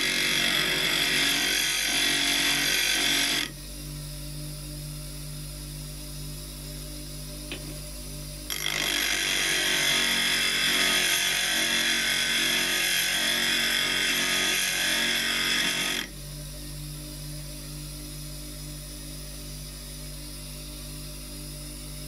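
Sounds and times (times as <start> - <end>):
chisel grinding on grinder wheel: 0.0 - 3.6, 8.5 - 16.1
grinder motor humming: 0.0 - 5.8, 7.4 - 22.0.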